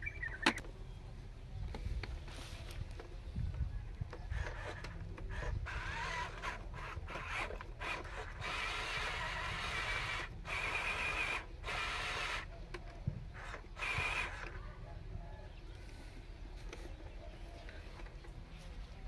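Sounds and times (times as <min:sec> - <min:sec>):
toy truck motor whirring: 0:04.0 - 0:14.8.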